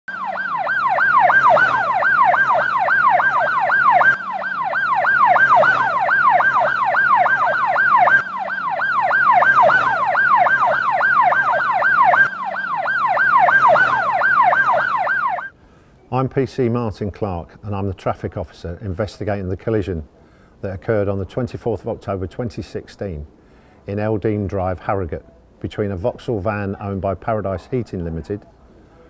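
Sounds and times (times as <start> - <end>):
police siren yelp: 0.1 - 15.6.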